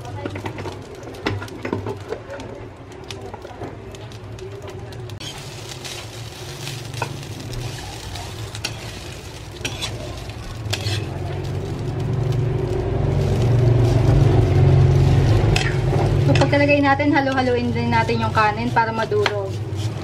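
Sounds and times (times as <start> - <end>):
light sizzle: 0.0 - 20.0
spatula scraping frying pan: 5.2 - 11.8, 12.6 - 20.0.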